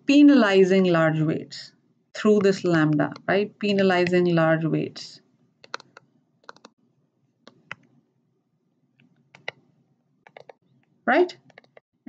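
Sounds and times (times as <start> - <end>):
stylus tapping on tablet screen: 5.6 - 6.8, 7.5 - 8.0, 9.0 - 9.7, 10.3 - 10.6, 11.4 - 11.8.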